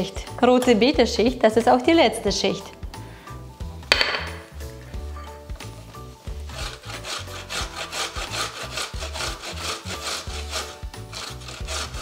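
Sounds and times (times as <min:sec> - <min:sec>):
grating on a metal grater: 0:06.3 - 0:12.0.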